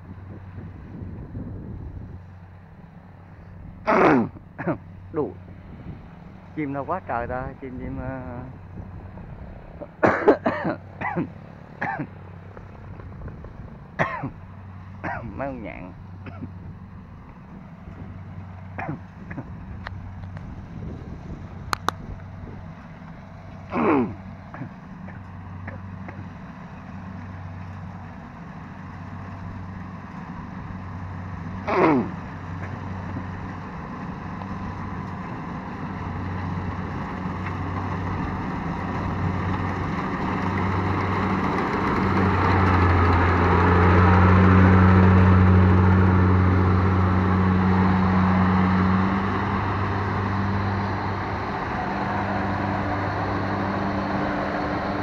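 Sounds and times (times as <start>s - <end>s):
combine harvester engine running: 0.0s - 55.0s.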